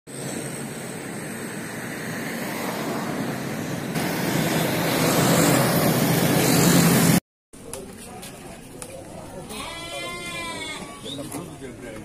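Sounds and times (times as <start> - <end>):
truck passing close by: 0.1 - 7.2
road traffic noise: 0.1 - 9.4.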